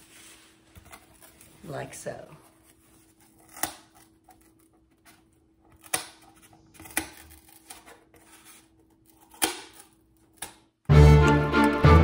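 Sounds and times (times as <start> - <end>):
scissors snipping cardboard: 3.2 - 10.6.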